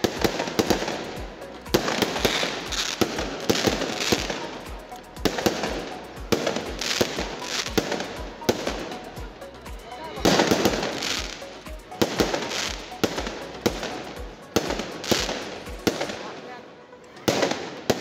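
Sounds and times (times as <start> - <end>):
fireworks bangs: 0.0 - 4.6, 10.2 - 16.5.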